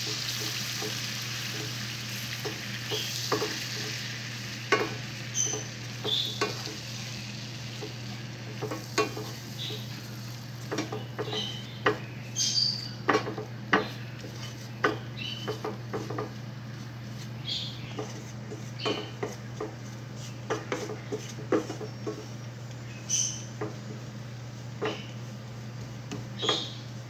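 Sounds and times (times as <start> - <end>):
steady low hum: 0.0 - 27.0
short high squeaks: 5.3 - 6.4
wooden spatula scraping metal pan: 14.2 - 22.3.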